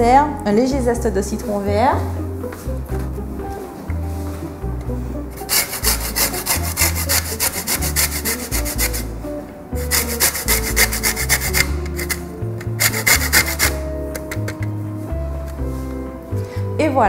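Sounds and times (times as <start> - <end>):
background music with bass: 0.0 - 17.0
lime grated on metal grater: 5.4 - 9.1, 9.8 - 14.6.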